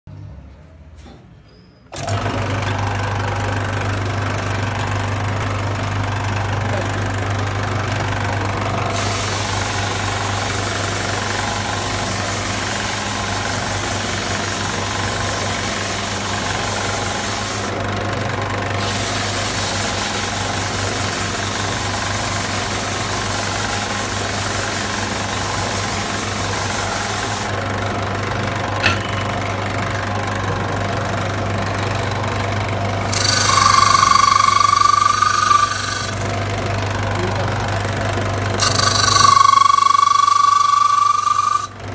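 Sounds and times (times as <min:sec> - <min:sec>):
bench sander motor hum: 0:02.3 - 0:41.9
wood sanding hiss: 0:09.0 - 0:17.7, 0:33.1 - 0:36.2, 0:38.6 - 0:41.7.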